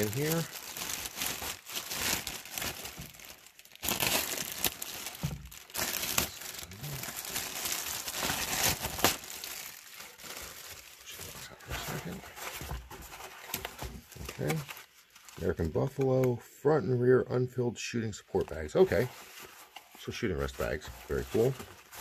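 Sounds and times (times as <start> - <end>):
plastic bag crinkling: 0.0 - 12.2.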